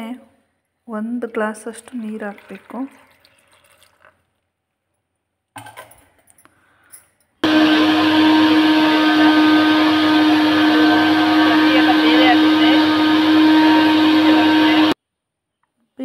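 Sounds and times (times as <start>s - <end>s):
mixer grinder humming: 7.4s - 15.0s.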